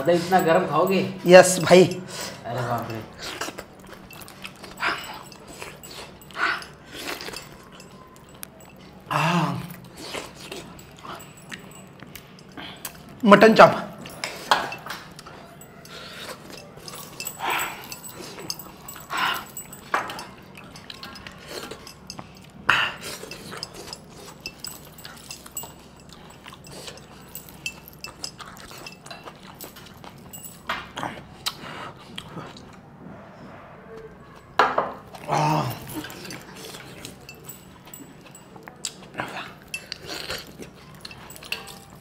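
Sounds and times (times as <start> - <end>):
chewing and smacking: 0.0 - 13.2, 13.9 - 32.9, 34.3 - 42.0
spoon clinking on steel bowl: 14.1 - 30.9, 39.6 - 42.0.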